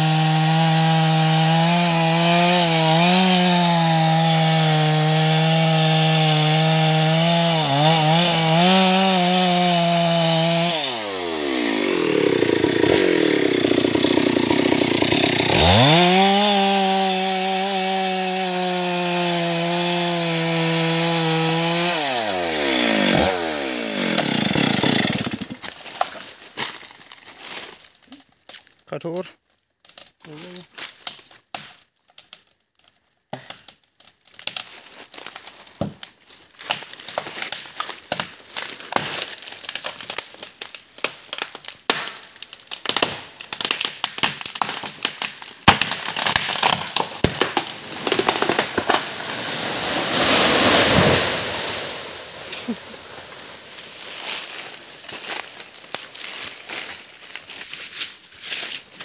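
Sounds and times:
dry leaves crunching underfoot: 49.0s - 59.0s
twigs snapping: 53.3s - 59.0s.

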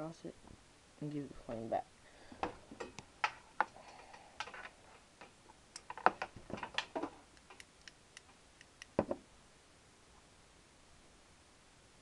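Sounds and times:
lighter clicks and taps: 7.4s - 9.0s.

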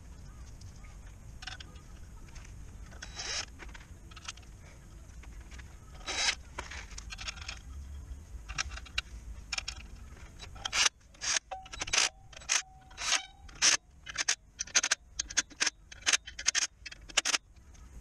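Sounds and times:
tools scraping metal: 2.9s - 4.4s, 9.5s - 17.4s
cordless drill spinning: 6.0s - 6.4s.

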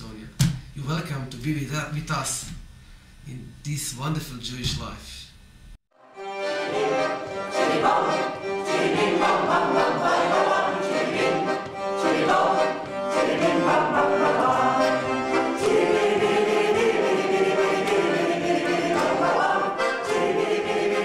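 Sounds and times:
choir singing: 6.0s - 21.0s
piano accordion: 6.0s - 21.0s.

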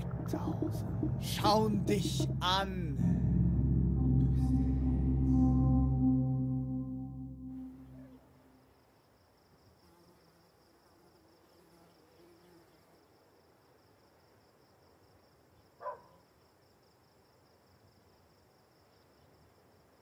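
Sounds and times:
short loud sound: 0.0s - 8.5s
crickets chirring: 7.8s - 20.0s.

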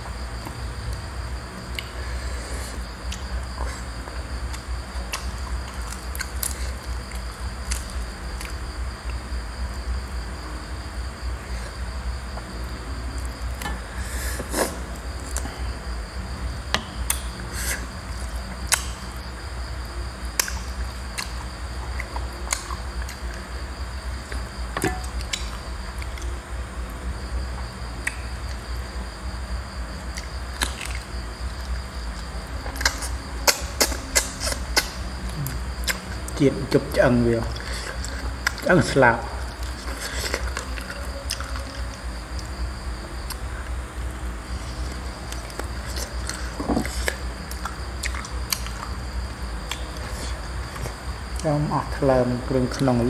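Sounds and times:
insect trill: 0.0s - 53.0s
chewing and cracking chicken bones: 4.5s - 8.6s, 20.4s - 23.4s, 30.1s - 36.4s, 39.5s - 42.5s, 44.9s - 48.9s.

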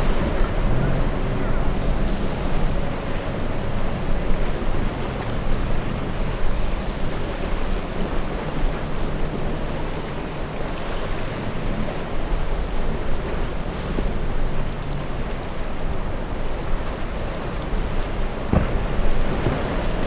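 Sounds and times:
outboard motors droning: 0.0s - 20.0s
waves breaking: 0.0s - 20.0s
wind buffeting microphone: 0.0s - 20.0s.

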